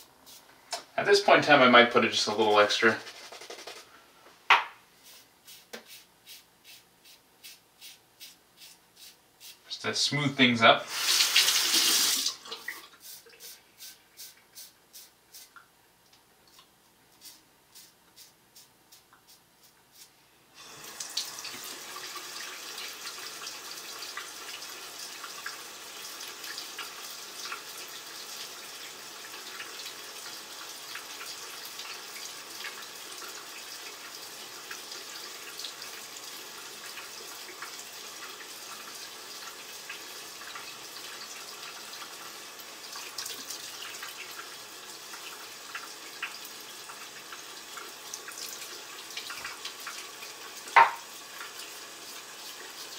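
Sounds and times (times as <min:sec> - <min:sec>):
tap running into sink: 0:50.7 - 0:51.1.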